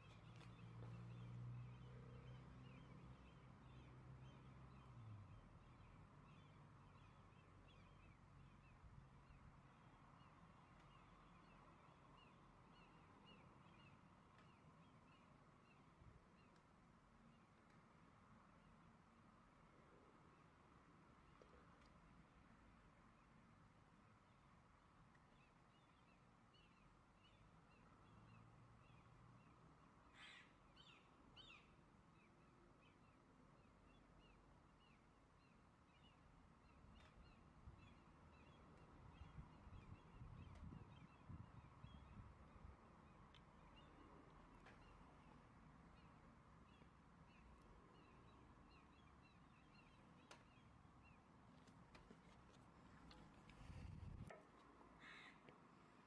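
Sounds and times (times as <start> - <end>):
crow cawing: 55.0 - 55.4.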